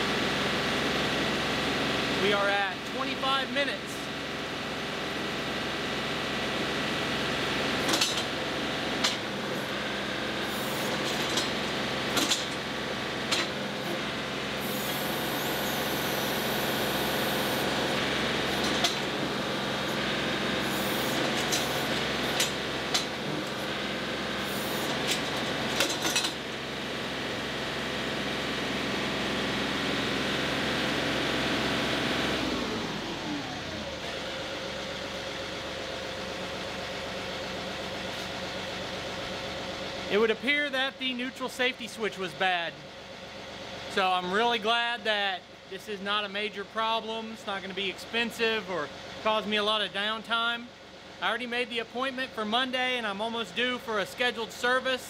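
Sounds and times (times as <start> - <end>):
diesel tractor engine running: 0.0 - 54.7
hydraulic hissing: 14.6 - 17.9, 20.6 - 22.5.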